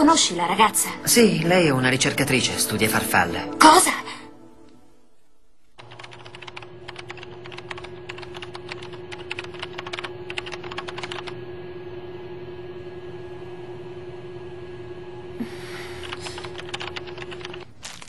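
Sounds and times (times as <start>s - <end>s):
typing on computer keyboard: 5.8s - 11.4s, 16.0s - 17.7s
low hum: 6.5s - 17.6s.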